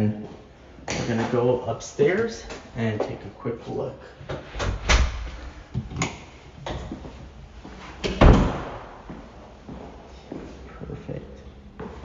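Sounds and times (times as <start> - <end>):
door slamming: 4.6 - 6.0, 8.0 - 9.1.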